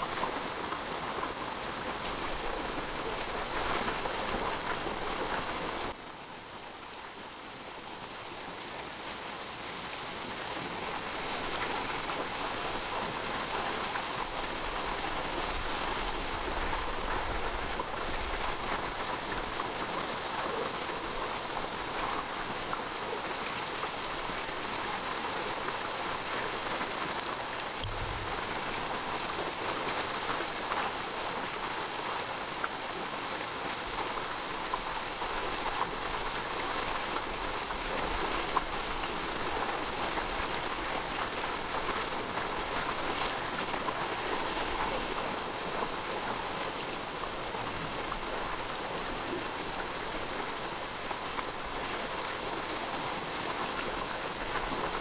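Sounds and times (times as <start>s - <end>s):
rain falling: 0.0s - 55.0s.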